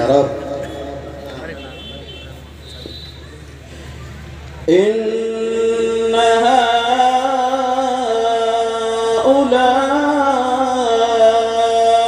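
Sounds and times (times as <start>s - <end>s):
man reciting melodically: 0.0s - 2.0s, 4.7s - 12.0s.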